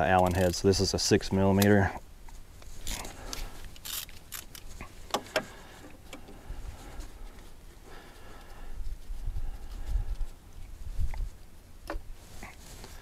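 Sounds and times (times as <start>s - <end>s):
ratchet metal clicks: 3.7s - 4.7s.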